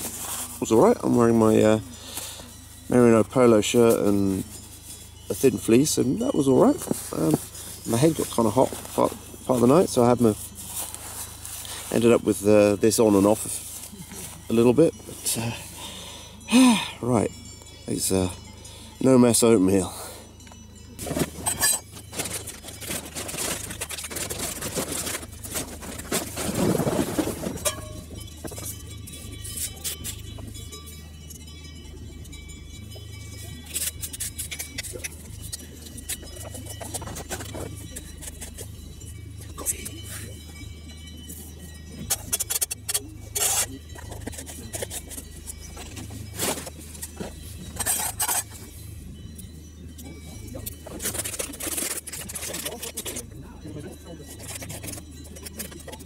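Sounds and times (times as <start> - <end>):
plastic bag crinkling: 21.0 - 28.1.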